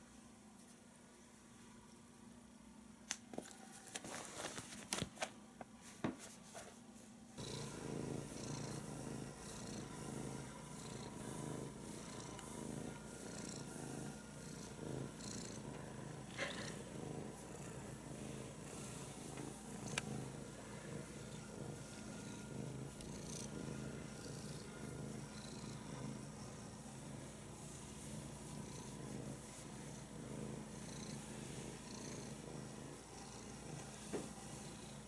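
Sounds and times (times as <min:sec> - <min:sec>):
cat purring: 0:07.4 - 0:35.0.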